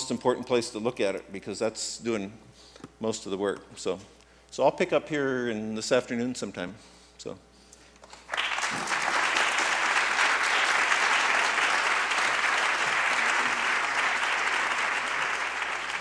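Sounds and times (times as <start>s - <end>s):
audience applauding: 8.3s - 16.0s.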